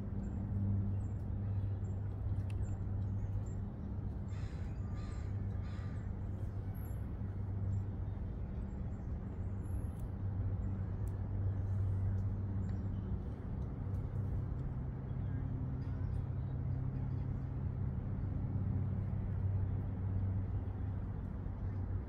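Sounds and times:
steady low hum: 0.0s - 22.0s
crow cawing: 4.3s - 6.0s.

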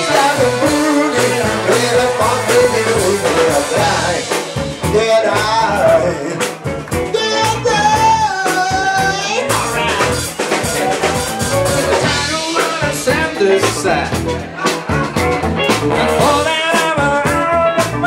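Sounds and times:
live band playing: 0.0s - 18.0s
person singing: 0.0s - 18.0s.

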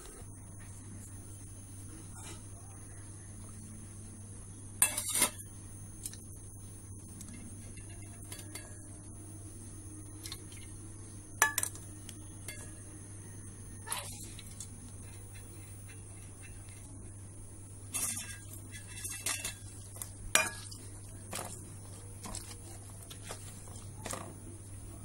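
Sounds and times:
steady low hum: 0.0s - 25.0s
ladle scraping a steel pot: 17.9s - 21.6s.

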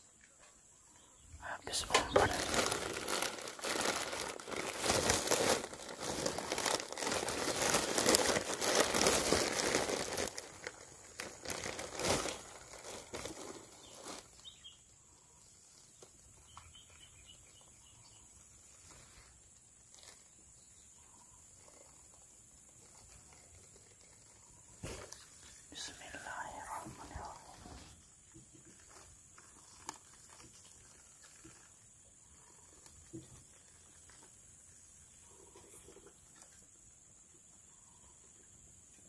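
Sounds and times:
crinkling and rustling with clicks: 1.6s - 14.5s, 21.6s - 25.7s, 26.8s - 34.5s.

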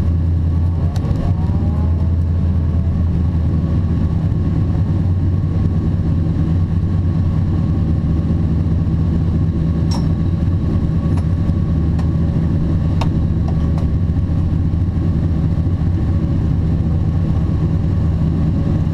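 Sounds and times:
car engine idling: 0.0s - 18.9s.

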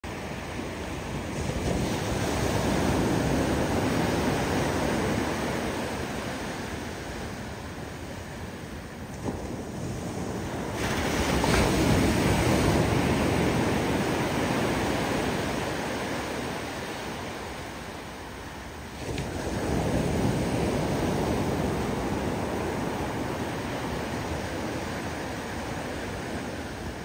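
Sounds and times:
ocean waves breaking: 0.1s - 27.0s.

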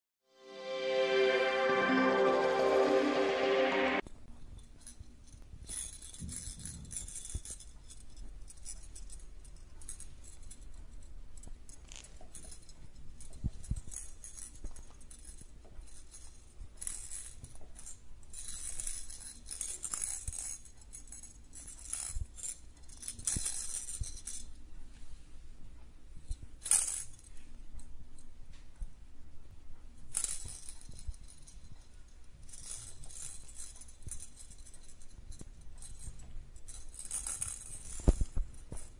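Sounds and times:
short burst of music: 0.3s - 4.0s
plastic toy rattling: 5.6s - 24.6s, 26.6s - 27.3s, 30.1s - 38.9s.

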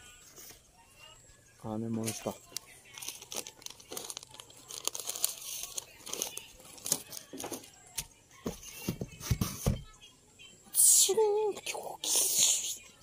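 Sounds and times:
paper crinkling and rustling: 2.0s - 7.7s.

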